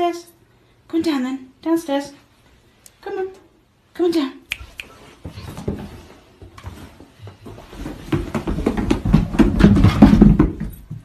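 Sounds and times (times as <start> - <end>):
dog paws thumping on stairs: 5.2 - 11.0.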